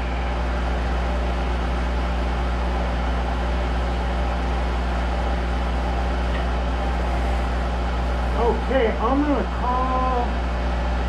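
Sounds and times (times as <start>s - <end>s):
lathe humming and whirring: 0.0s - 11.0s.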